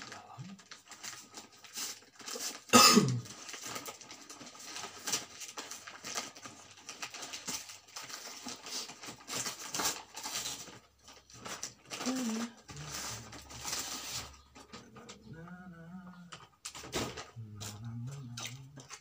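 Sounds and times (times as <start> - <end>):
wrapping paper crinkling and tearing: 0.0 - 15.1
person coughing: 2.7 - 3.2.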